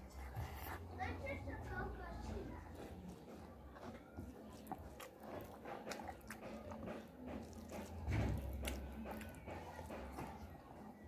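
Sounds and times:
person chewing and smacking: 0:02.7 - 0:11.0.

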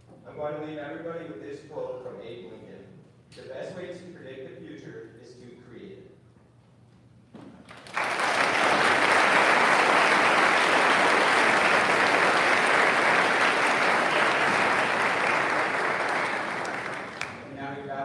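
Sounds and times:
audience applauding: 0:07.7 - 0:17.5.

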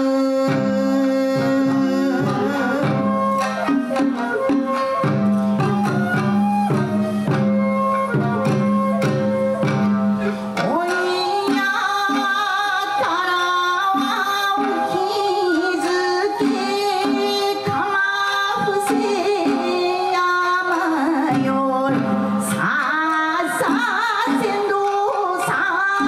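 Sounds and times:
shamisen plucking: 0:00.5 - 0:20.8
taiko drum strokes: 0:01.4 - 0:11.7.

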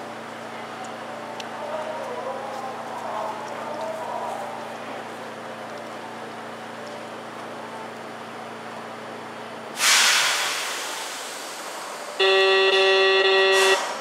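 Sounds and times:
tram humming: 0:00.0 - 0:09.8, 0:10.5 - 0:14.0
compressed air hiss: 0:09.8 - 0:12.0
tram horn blast: 0:12.2 - 0:14.0.

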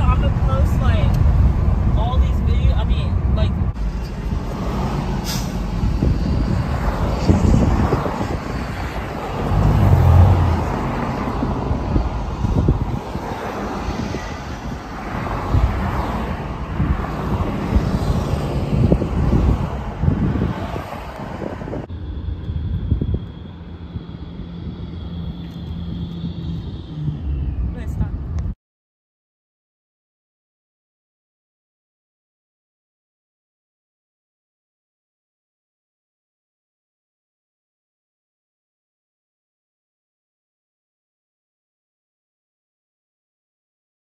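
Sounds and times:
car road and wind noise: 0:00.0 - 0:28.6
thin high whine: 0:21.9 - 0:28.0.

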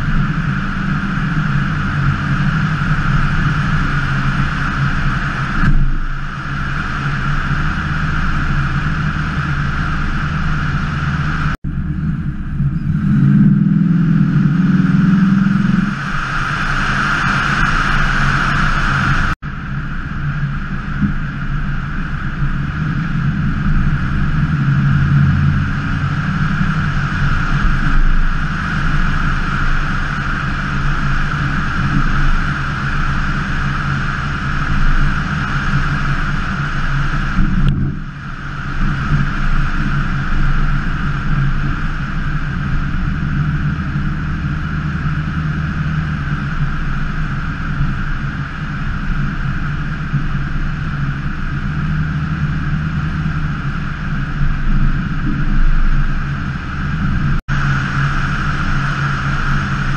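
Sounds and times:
car engine running: 0:00.0 - 0:59.9
wind and road noise: 0:00.0 - 0:59.9.

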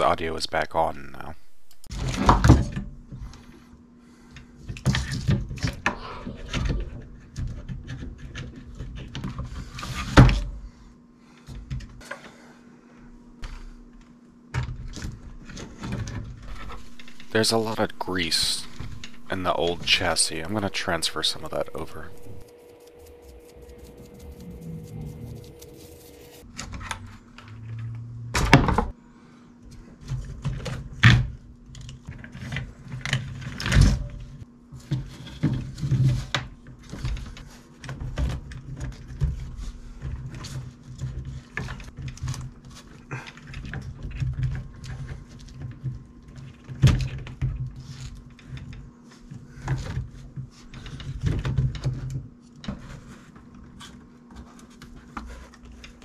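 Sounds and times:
faint steady hum: 0:00.0 - 0:07.6, 0:09.5 - 0:29.9.

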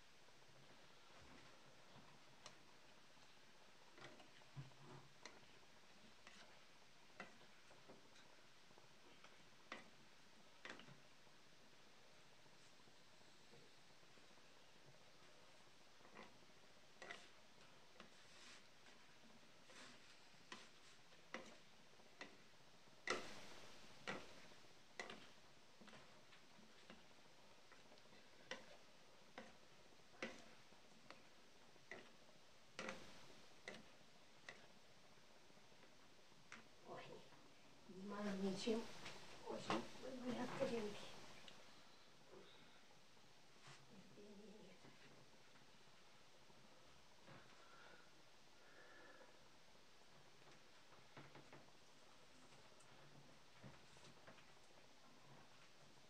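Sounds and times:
low hiss: 0:00.0 - 0:56.0
spatula clicking in frying pan: 0:22.2 - 0:25.4.

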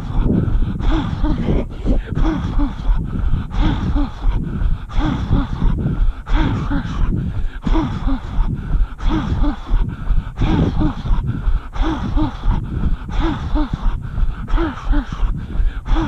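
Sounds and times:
runner breathing heavily: 0:00.0 - 0:16.0.

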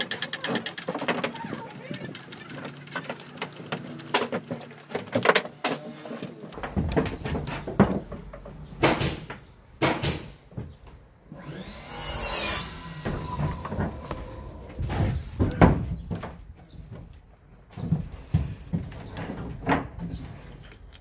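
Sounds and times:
tool knocking and clattering: 0:00.0 - 0:05.6, 0:06.6 - 0:10.8.

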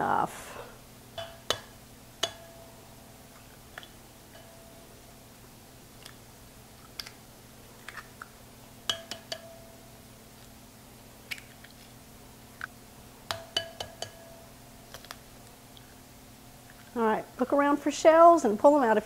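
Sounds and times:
eggs tapping on ceramic bowl: 0:01.2 - 0:02.8, 0:08.8 - 0:09.8, 0:13.3 - 0:14.5
bowl ringing: 0:01.2 - 0:03.0, 0:04.3 - 0:05.0, 0:08.9 - 0:09.9, 0:13.3 - 0:14.5.

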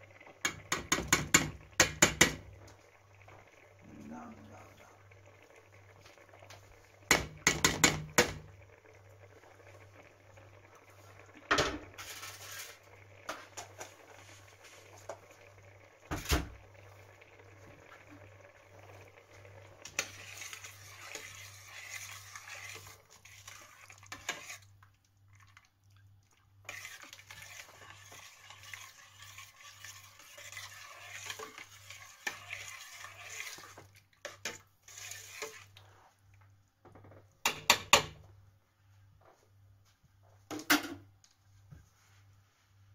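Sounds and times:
spoon knocking on a metal pot: 0:00.5 - 0:02.4, 0:07.1 - 0:08.4, 0:37.4 - 0:38.2
spoon scraping a pot: 0:07.1 - 0:08.4, 0:11.7 - 0:14.0, 0:19.8 - 0:24.7, 0:26.6 - 0:36.0.

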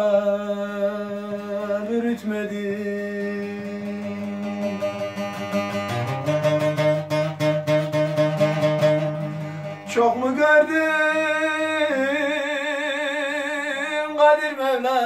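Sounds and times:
saz strumming: 0:00.7 - 0:15.0
man singing a long note: 0:09.9 - 0:15.0.

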